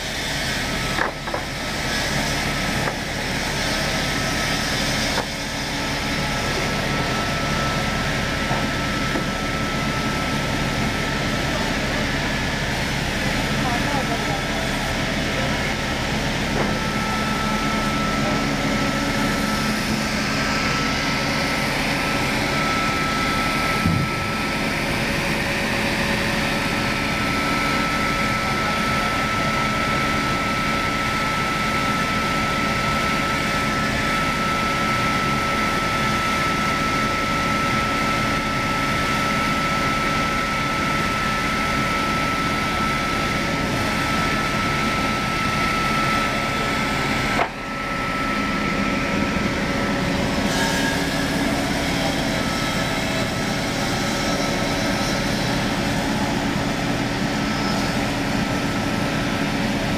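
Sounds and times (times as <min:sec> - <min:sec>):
circular saw whining: 0:00.0 - 0:59.9
low motor hum: 0:00.0 - 0:59.9.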